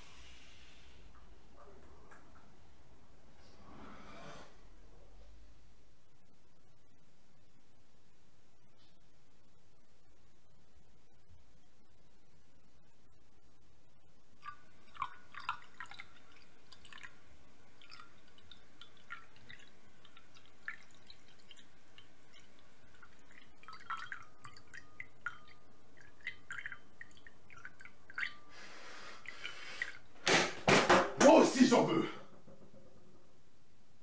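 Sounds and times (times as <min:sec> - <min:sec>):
coffee pouring into cup: 0:14.4 - 0:30.1.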